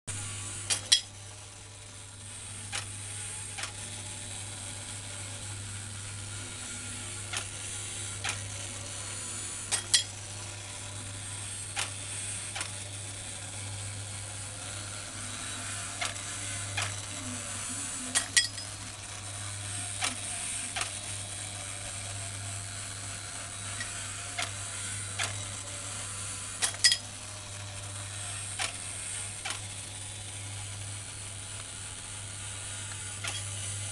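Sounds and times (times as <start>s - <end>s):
toy motor and gears whirring: 0.2s - 33.9s
sharp mechanism clicks: 0.6s - 1.1s, 9.6s - 10.2s, 11.6s - 12.9s, 18.1s - 18.8s, 19.9s - 21.1s, 23.6s - 25.6s, 26.5s - 27.1s, 28.4s - 29.8s, 32.9s - 33.9s.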